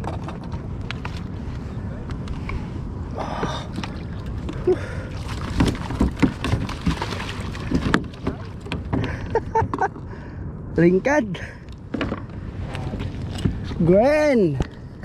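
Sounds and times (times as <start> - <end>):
gear knocking on plastic kayak: 5.5 - 9.9
wind on microphone: 12.2 - 15.0.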